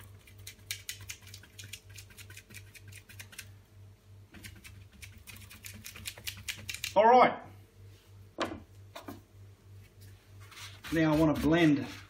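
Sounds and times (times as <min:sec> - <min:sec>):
brush bristles scratching canvas: 0:10.4 - 0:12.0.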